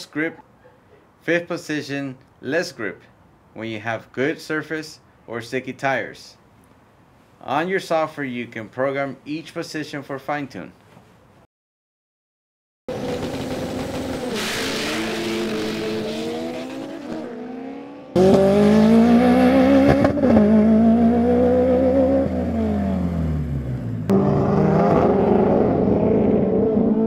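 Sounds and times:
race car engines revving hard: 12.9s - 27.0s.

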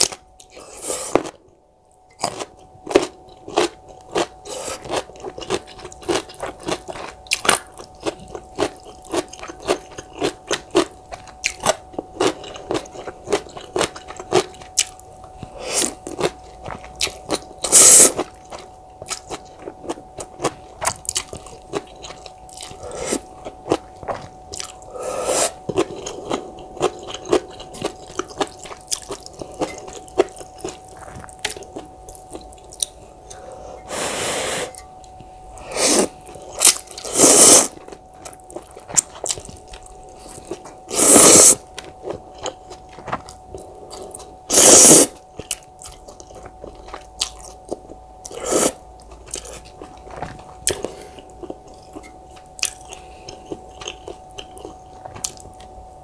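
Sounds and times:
faint steady hum: 0.0s - 56.0s
slurping noodles: 35.6s - 37.8s, 40.9s - 41.6s, 44.0s - 45.2s.

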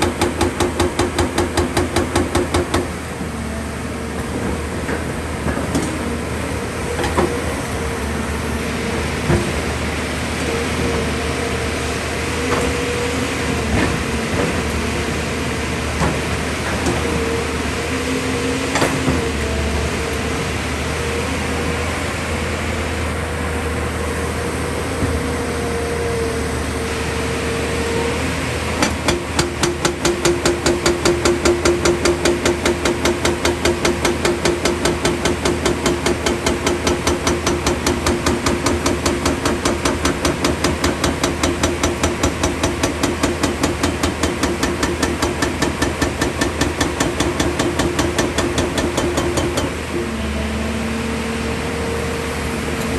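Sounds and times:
rock breaker hammering rock: 0.0s - 2.9s, 28.8s - 50.0s
diesel engine running: 0.0s - 52.9s
hydraulic whine: 0.0s - 52.9s.

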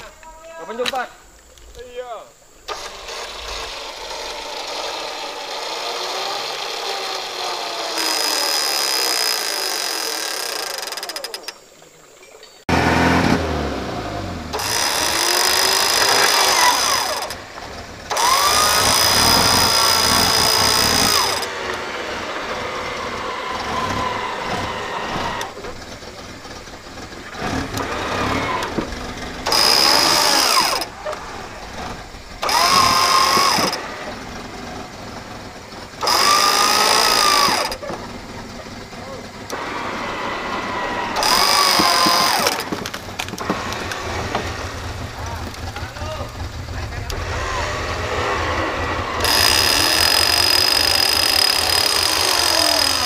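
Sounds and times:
vehicle engine running: 2.3s - 53.0s
electric winch motor whining: 2.6s - 11.7s, 12.7s - 53.0s.

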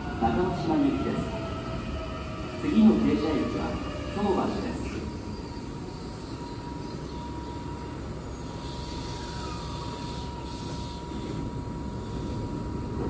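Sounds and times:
electric train rumble: 0.0s - 13.0s
thin steady whine: 5.6s - 13.0s.

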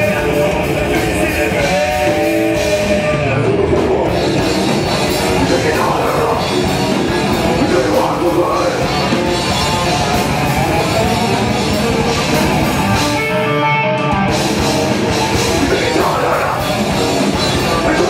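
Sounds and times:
person singing into a microphone: 0.0s - 6.6s, 7.4s - 9.1s, 15.5s - 18.0s
drum kit: 0.0s - 18.0s
electric guitar: 0.0s - 18.0s.

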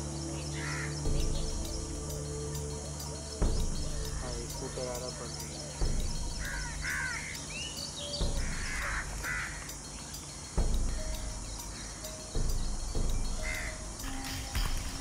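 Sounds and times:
birds calling: 0.0s - 15.0s
steady low background: 0.0s - 15.0s
dull low thuds: 1.0s - 4.8s, 5.8s - 7.2s, 8.2s - 9.6s, 10.6s - 15.0s.

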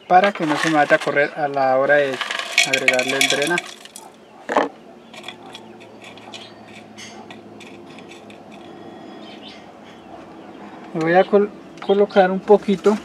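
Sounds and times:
pebbles clinking into a pot: 0.0s - 1.3s, 1.9s - 8.8s.

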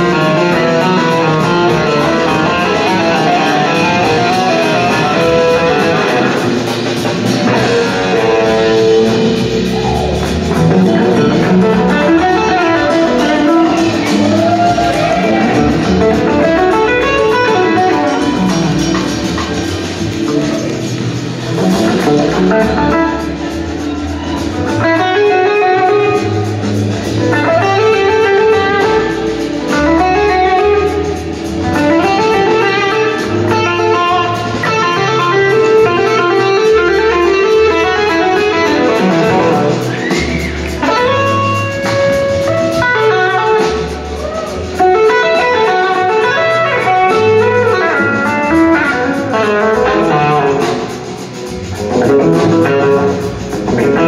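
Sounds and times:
blues-rock band playing: 0.0s - 54.0s
sliding electric guitar lead: 0.0s - 54.0s.

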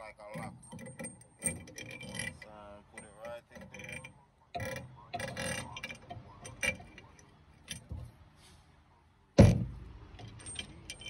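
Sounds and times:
metallic clicks and clinks: 10.1s - 11.0s.

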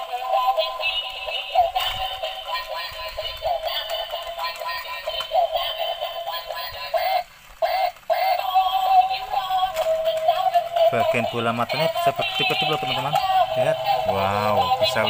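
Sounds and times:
toy playing electronic song: 0.0s - 15.0s.

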